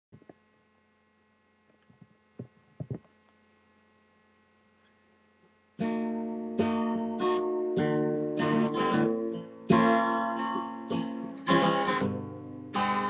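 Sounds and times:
faint electrical hum: 0.2 - 13.0
soft clicks and knocks: 1.7 - 3.4
acoustic guitar strummed: 5.8 - 13.0.

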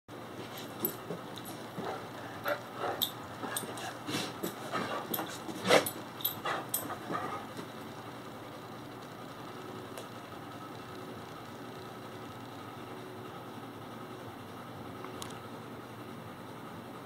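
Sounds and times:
dog claws clicking on carpet: 0.4 - 7.7.

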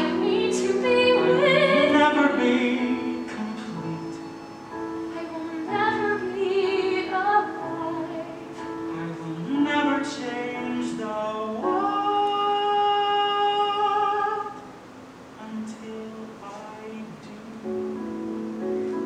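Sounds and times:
person singing: 0.0 - 4.4, 5.1 - 14.6
instrumental accompaniment: 0.0 - 14.6.

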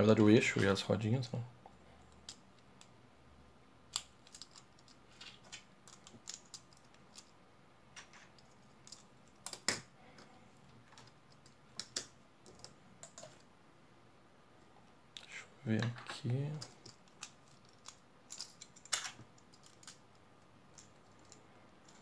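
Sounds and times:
plastic pieces clicking and clattering: 3.9 - 7.4, 8.0 - 13.4, 15.8 - 22.0.

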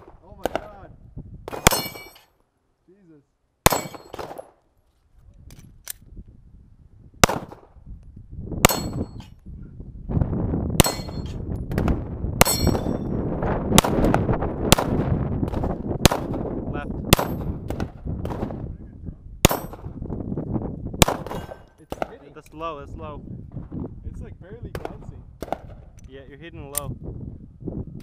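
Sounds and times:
pistol shots: 1.5 - 2.2, 3.6 - 4.6, 7.2 - 7.7, 8.6 - 9.2, 10.8 - 12.9, 13.8 - 16.4, 17.1 - 18.6, 19.4 - 19.8, 21.0 - 22.3, 24.7 - 25.8
steel plate ringing: 1.7 - 2.2, 3.7 - 4.1, 8.7 - 9.2, 10.8 - 11.3, 12.4 - 13.0.

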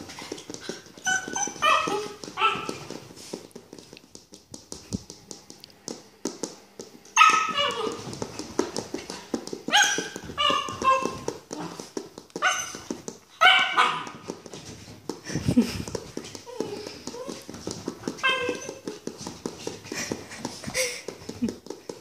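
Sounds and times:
puppy barking and yipping: 0.2 - 2.9, 7.2 - 8.1, 9.7 - 11.7, 12.4 - 14.2, 18.2 - 19.0.

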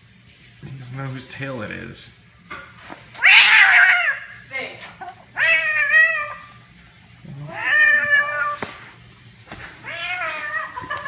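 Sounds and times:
cat yowling: 3.2 - 4.4, 5.3 - 6.6, 7.3 - 8.6, 9.8 - 11.0.

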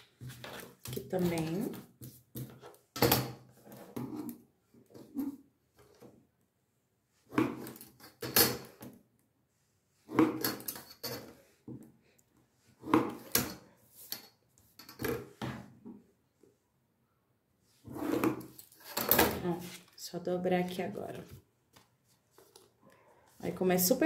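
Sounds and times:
ruler and paper shifting: 17.9 - 20.0.

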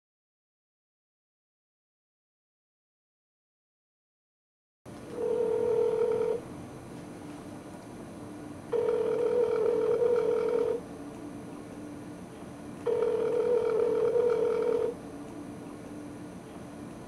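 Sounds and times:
telephone ringback tone: 5.1 - 6.4, 8.7 - 10.8, 12.9 - 15.0.

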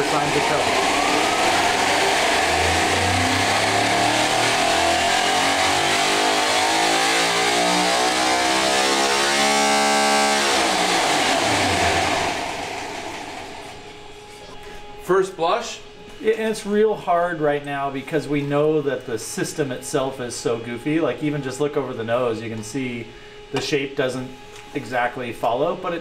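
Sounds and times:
mechanical whine rising in pitch: 0.0 - 14.4.

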